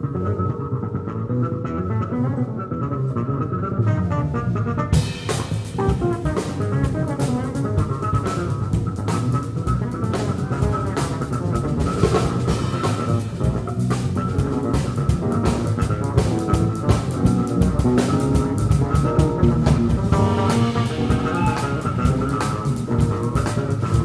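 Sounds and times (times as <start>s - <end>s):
electric bass guitars: 0.0s - 24.0s
jazz fusion band playing: 0.0s - 24.0s
rapid drum hits: 5.0s - 8.4s, 11.8s - 24.0s.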